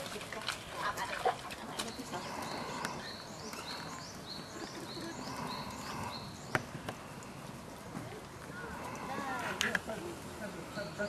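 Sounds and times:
outdoor background noise: 0.0 - 11.0
small bird singing: 1.8 - 7.4, 10.6 - 11.0.

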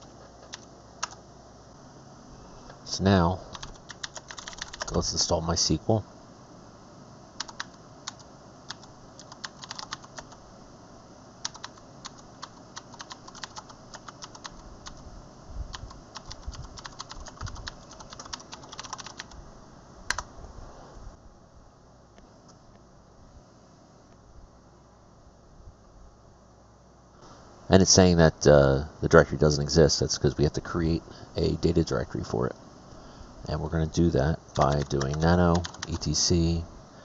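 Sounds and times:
typing on computer keyboard: 0.0 - 1.2, 3.5 - 5.0, 7.4 - 10.4, 11.4 - 15.0, 15.7 - 19.4, 34.5 - 36.1.

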